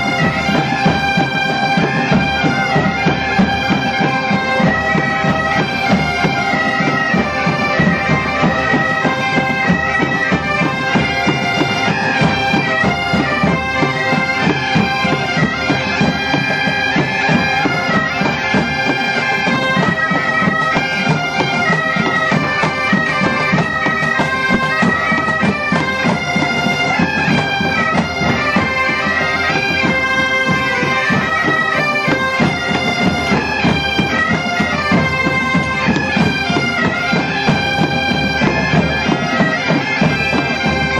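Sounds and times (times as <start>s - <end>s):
bagpipes playing with drones: 0.0s - 40.9s
snare and bass drums: 0.0s - 40.9s.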